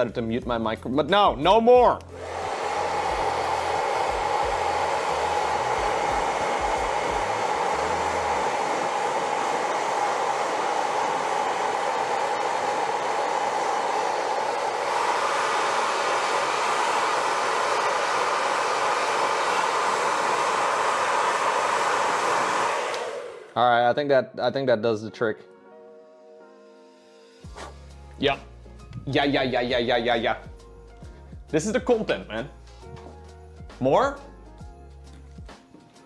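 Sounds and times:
hair dryer blowing: 2.0s - 23.6s.

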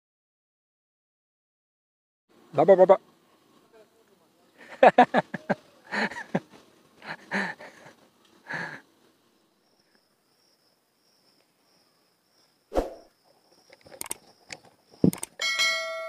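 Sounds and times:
man laughing: 4.6s - 8.8s
pistol metallic clicks: 13.8s - 15.4s.

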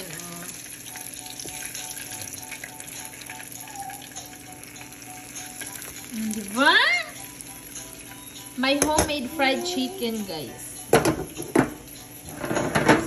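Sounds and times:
chicken frying in hot oil: 0.0s - 8.8s.

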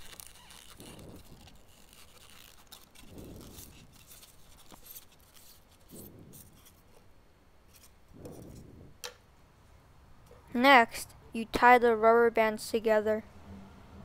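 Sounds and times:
scratching of styrofoam: 0.0s - 7.0s.

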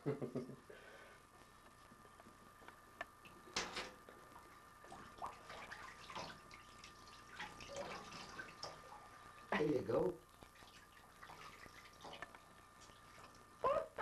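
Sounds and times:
bathwater splashing: 4.3s - 9.6s, 10.3s - 13.6s.

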